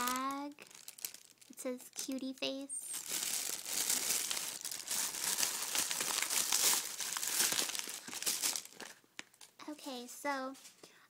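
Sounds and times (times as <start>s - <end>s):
packaging bag crackling: 0.0s - 9.5s.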